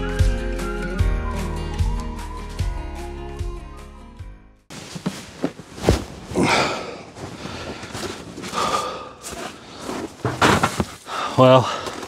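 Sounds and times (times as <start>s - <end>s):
footsteps on snow: 4.7s - 11.0s
handling and rustling noise: 4.7s - 11.1s.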